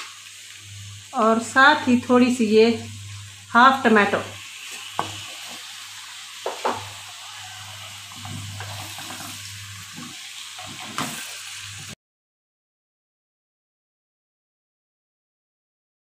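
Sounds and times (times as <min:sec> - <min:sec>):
potato slices sizzling in a pot: 0:00.0 - 0:12.0
wooden spoon knocking a pot: 0:06.4 - 0:06.9.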